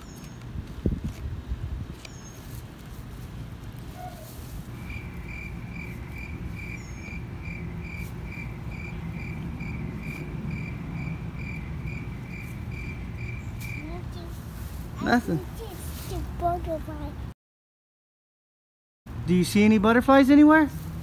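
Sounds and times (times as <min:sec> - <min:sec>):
low background rumble: 0:02.8 - 0:17.3
cricket chirping: 0:04.8 - 0:13.9.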